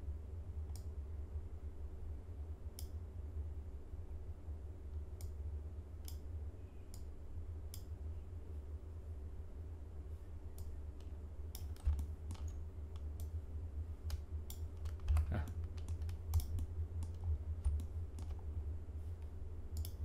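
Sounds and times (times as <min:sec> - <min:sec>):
steady low hum: 0:00.0 - 0:20.0
mouse clicks: 0:02.8 - 0:03.0, 0:06.0 - 0:06.2, 0:07.7 - 0:07.9, 0:10.5 - 0:13.4, 0:14.0 - 0:18.4, 0:19.2 - 0:20.0
keyboard keystrokes: 0:11.0 - 0:13.3, 0:14.1 - 0:18.4.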